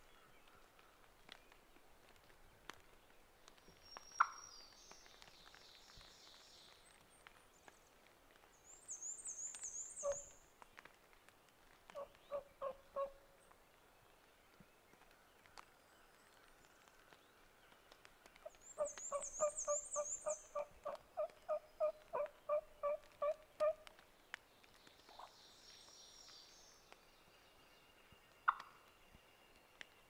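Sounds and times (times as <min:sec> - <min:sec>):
songbird calling: 0:08.7 - 0:10.4, 0:11.9 - 0:13.2, 0:18.4 - 0:23.9.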